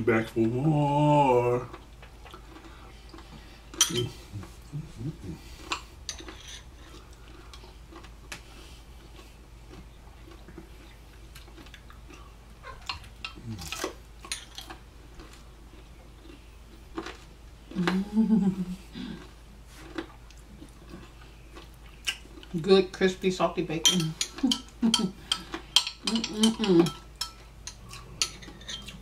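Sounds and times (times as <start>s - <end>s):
cutlery clinking on glassware: 3.8s - 4.1s, 23.8s - 29.0s.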